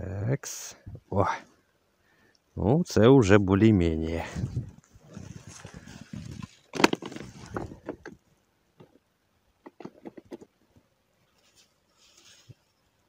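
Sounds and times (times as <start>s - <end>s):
handling rustles and clicks: 4.8s - 8.2s, 9.6s - 10.6s.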